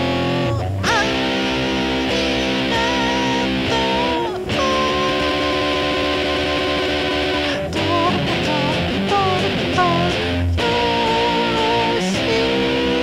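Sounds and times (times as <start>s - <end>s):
backing music: 0.0s - 13.0s
electric guitar lead notes: 0.0s - 13.0s.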